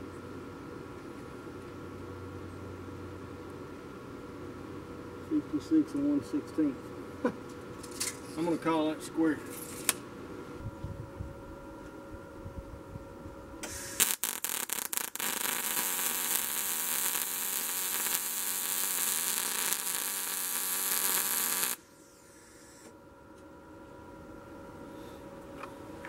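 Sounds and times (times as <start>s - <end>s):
welding arc sizzling and popping: 13.6s - 22.9s.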